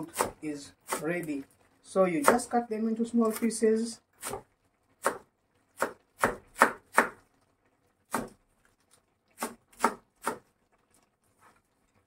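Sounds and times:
knife chopping on plastic board: 0.0s - 1.1s, 2.2s - 2.5s, 4.2s - 7.2s, 8.1s - 8.4s, 9.4s - 10.5s.

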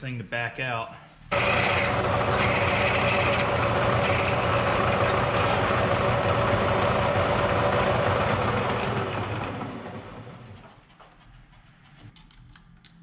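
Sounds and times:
milling machine spindle humming: 1.3s - 10.6s.

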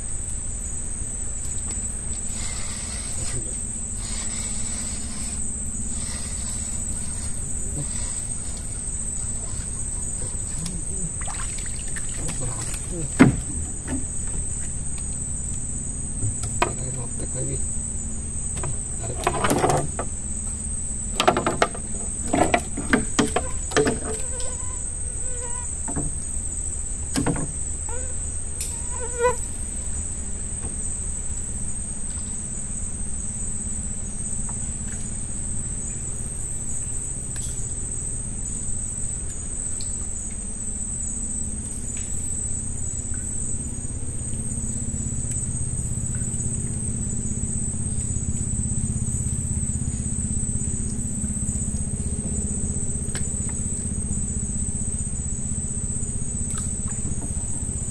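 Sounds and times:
crickets trilling: 0.0s - 57.9s
low steady hum: 0.0s - 57.9s
sharp knocks and clatter: 11.6s - 15.1s, 16.2s - 17.2s, 18.5s - 20.2s, 21.1s - 24.6s, 25.8s - 26.3s, 27.1s - 27.7s, 56.5s - 57.9s.

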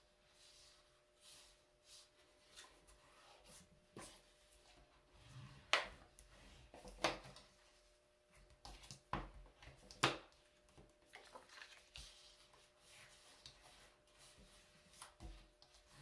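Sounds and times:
paper rustling: 11.0s - 15.8s.

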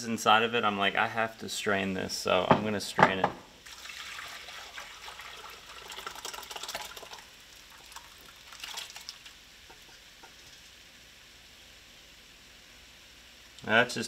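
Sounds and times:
broth splashing through a strainer: 3.6s - 11.2s.

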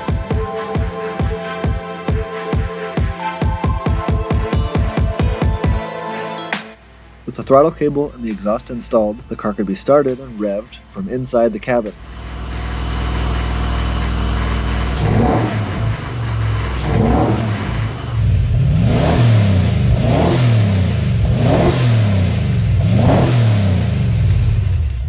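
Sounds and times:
car engine idling and revving: 11.8s - 25.0s.

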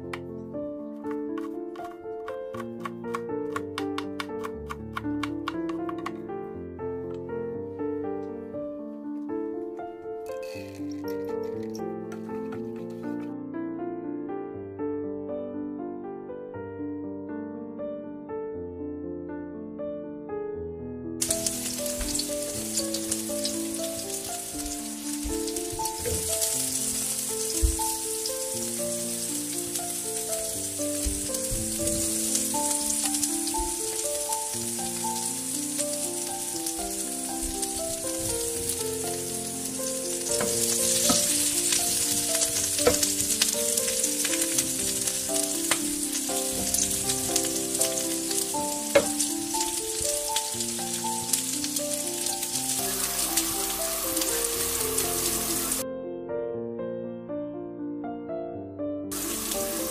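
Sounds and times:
light instrumental melody: 0.0s - 18.9s, 21.2s - 59.9s
wooden spatula clicks: 1.1s - 6.2s
food sizzling in oil: 21.2s - 55.8s, 59.1s - 59.9s.

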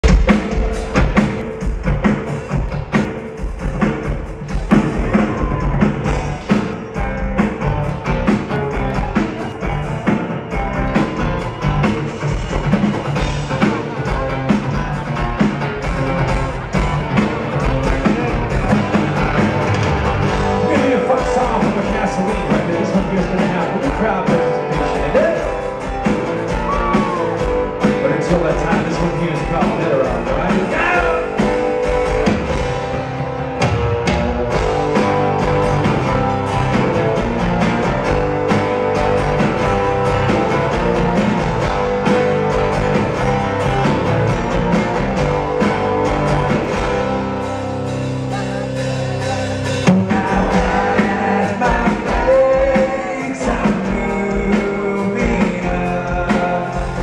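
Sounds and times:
drum kit: 0.0s - 57.0s
strummed acoustic guitars: 0.0s - 57.0s
person singing: 48.2s - 57.0s.

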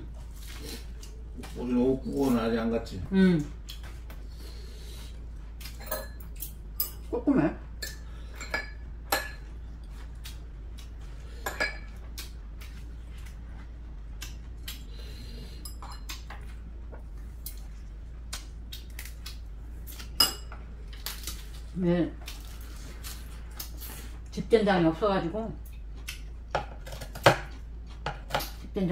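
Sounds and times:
cutlery clinking on ceramic bowls: 5.7s - 7.1s, 11.4s - 12.0s.

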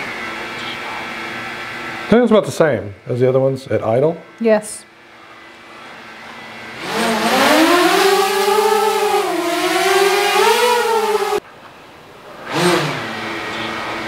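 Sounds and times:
drone motors whining: 5.1s - 11.4s, 12.4s - 14.0s.

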